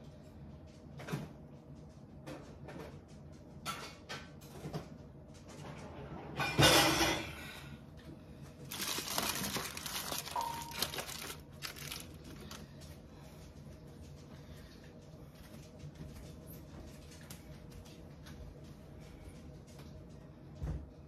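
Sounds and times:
crinkling and rustling: 8.4s - 14.3s
rustling clatter: 8.6s - 13.0s.

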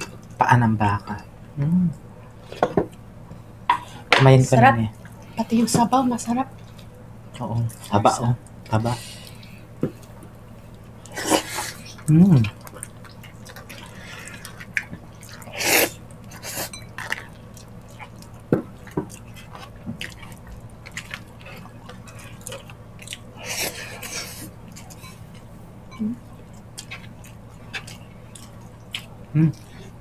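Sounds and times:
faint low hum: 0.0s - 30.0s
wet chewing and lip smacks: 6.6s - 23.4s, 26.2s - 30.0s.

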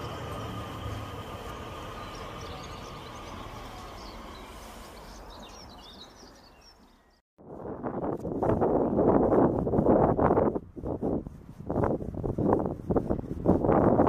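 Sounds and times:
electric train whine and rumble: 0.0s - 6.1s
birds chirping: 0.0s - 7.2s
wind-like noise: 7.4s - 14.0s.

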